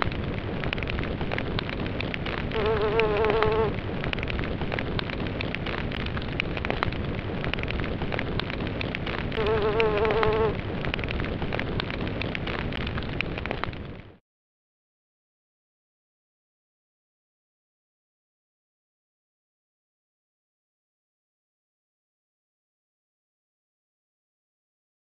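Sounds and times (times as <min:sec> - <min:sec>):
crackling hiss: 0:00.0 - 0:14.2.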